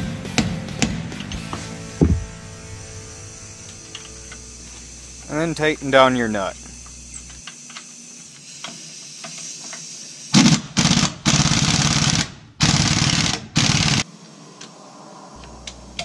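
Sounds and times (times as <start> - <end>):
impact wrench hammering: 1.6 - 2.4.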